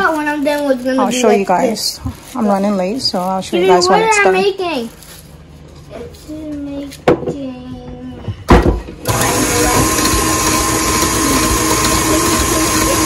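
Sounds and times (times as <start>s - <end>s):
electric blender running: 9.0s - 13.0s.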